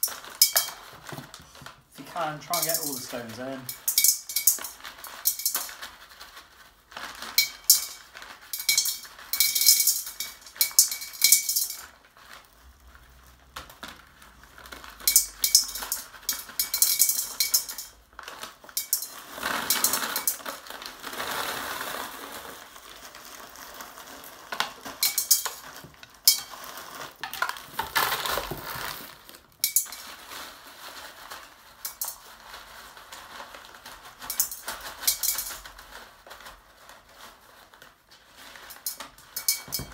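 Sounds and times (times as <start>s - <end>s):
stones clinking against glass: 0.0s - 0.9s, 2.3s - 5.8s, 7.4s - 11.9s, 15.0s - 18.0s, 18.7s - 20.5s, 24.9s - 28.5s, 29.6s - 30.1s, 31.8s - 32.2s, 34.2s - 35.6s, 38.7s - 39.9s.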